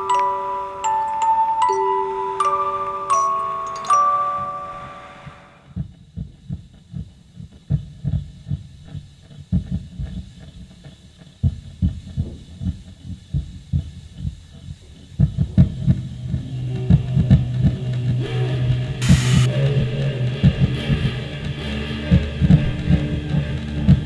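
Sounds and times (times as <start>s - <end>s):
heartbeat thumps: 5.8s - 8.8s, 9.5s - 10.3s, 11.4s - 14.4s, 15.2s - 16.0s
low hum: 19.0s - 20.4s.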